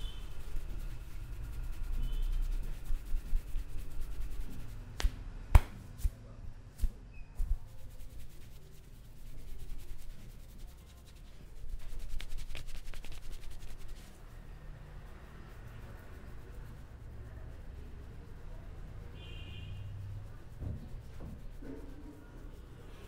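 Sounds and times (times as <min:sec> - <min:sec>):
fingers rubbing through hair: 0:00.0 - 0:05.1, 0:06.8 - 0:23.0
sharp cracks from massage: 0:11.8 - 0:14.0.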